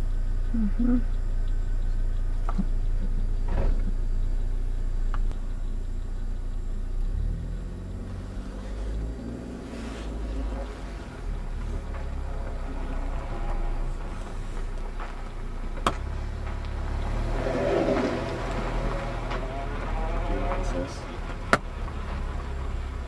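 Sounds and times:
car engine rumbling: 0:00.0 - 0:23.0
humming engine note: 0:00.0 - 0:23.0.

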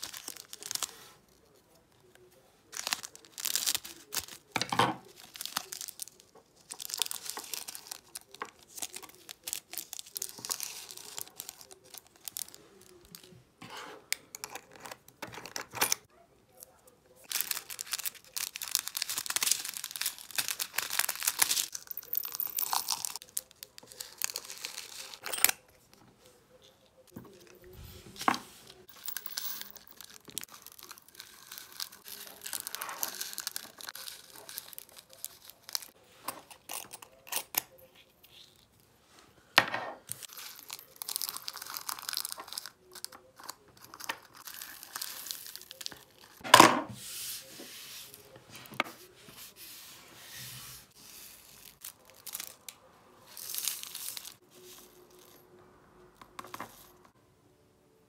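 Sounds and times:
plastic bags crinkling: 0:00.0 - 0:01.4, 0:02.7 - 0:13.3, 0:17.3 - 0:25.3, 0:28.8 - 0:36.0, 0:40.1 - 0:46.4
plastic bag tearing: 0:17.3 - 0:21.8, 0:29.8 - 0:35.9
tiny beads poured into glass jars: 0:17.3 - 0:25.2, 0:28.8 - 0:35.9, 0:53.3 - 0:55.3.

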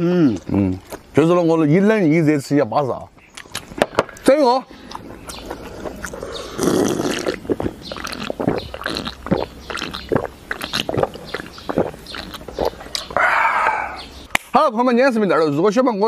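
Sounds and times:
person gulping a drink: 0:04.8 - 0:14.1
breathy rush: 0:13.2 - 0:14.1.

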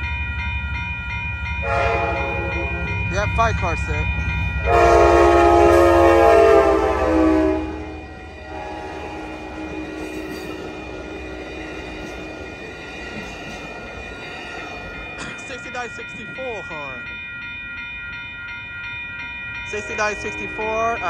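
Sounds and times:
train wheels rushing on rail: 0:01.3 - 0:17.2
locomotive horn blast: 0:01.6 - 0:03.0, 0:04.6 - 0:12.6.

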